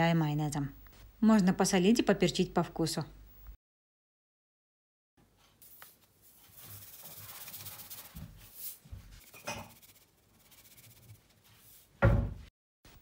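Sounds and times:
loud thump: 0:12.0 - 0:12.5.

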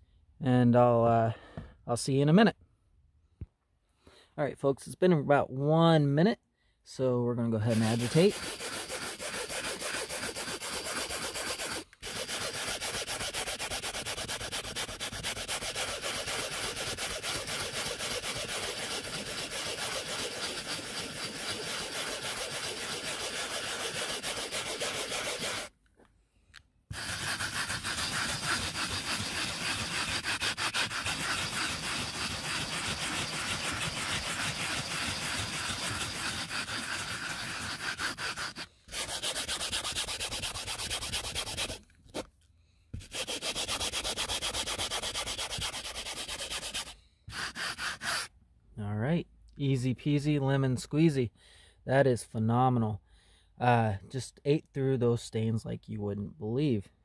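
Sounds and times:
brush scrubbing upholstery: 0:07.7 - 0:25.7, 0:26.9 - 0:42.3, 0:43.0 - 0:48.3.

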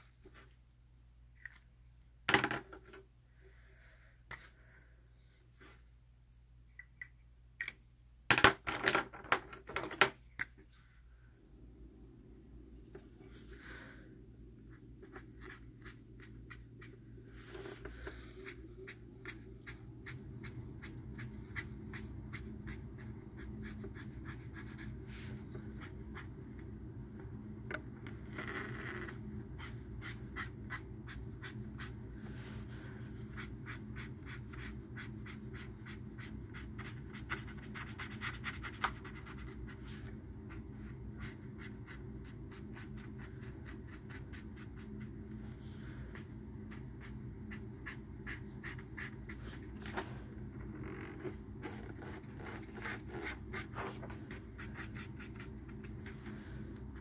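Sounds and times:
steady low hum: 0:10.2 - 0:57.0
pen scratching on paper: 0:14.7 - 0:26.3, 0:29.0 - 0:45.1, 0:46.1 - 0:50.0, 0:51.2 - 0:56.3.

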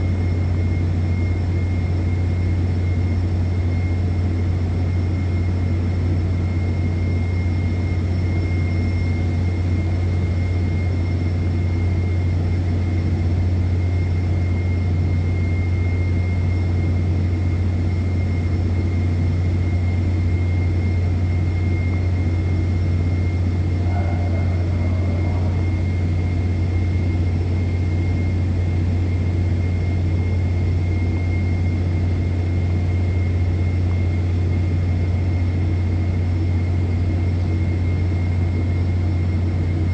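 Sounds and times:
machinery deep drone: 0:00.0 - 0:39.9
high whine: 0:06.6 - 0:36.9.

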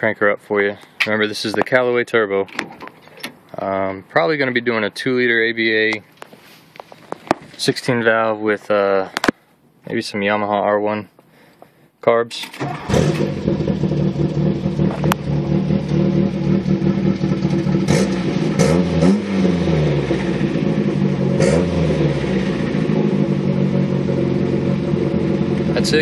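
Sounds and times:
car engine idling and revving: 0:12.6 - 0:26.0.

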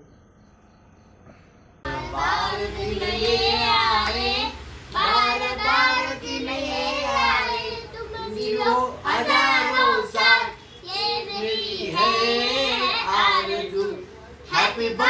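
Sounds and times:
girl singing: 0:01.9 - 0:13.8.

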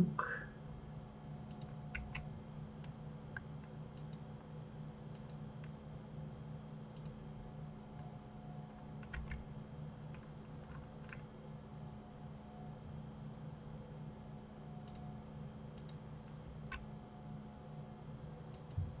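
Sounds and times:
steady low hum: 0:00.0 - 0:19.0
mouse and keyboard clicks: 0:01.5 - 0:02.3, 0:03.4 - 0:04.2, 0:05.1 - 0:05.8, 0:07.0 - 0:07.2, 0:14.8 - 0:15.0, 0:18.5 - 0:18.8.

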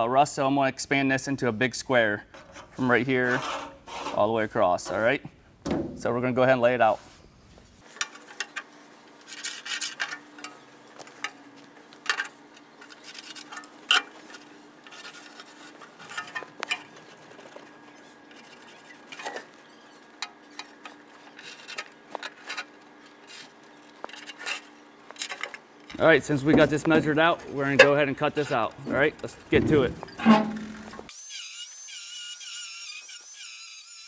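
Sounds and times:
hand tools tapping sheet metal: 0:29.6 - 0:31.1.

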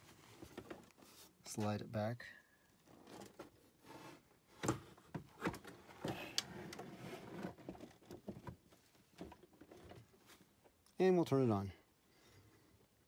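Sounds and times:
plastic case scraping across desk: 0:05.7 - 0:07.9.

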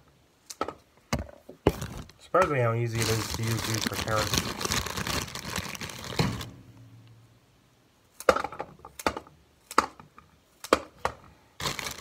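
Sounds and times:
carrots cracking and snapping: 0:08.1 - 0:12.0.

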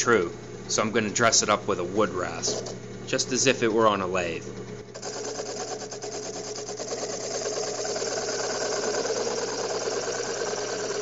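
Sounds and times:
drill press motor hum: 0:00.0 - 0:11.0
rasp scraping spinning wood: 0:02.2 - 0:02.8, 0:05.0 - 0:11.0.

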